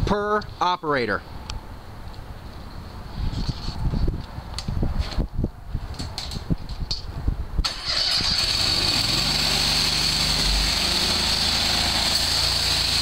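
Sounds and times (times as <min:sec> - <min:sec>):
pressure washer engine rumbling: 0:07.7 - 0:13.0
water jet hissing on concrete: 0:08.4 - 0:13.0.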